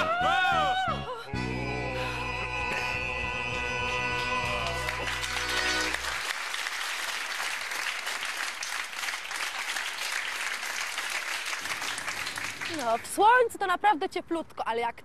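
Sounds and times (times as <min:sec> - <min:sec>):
audience applauding: 0:04.1 - 0:13.1.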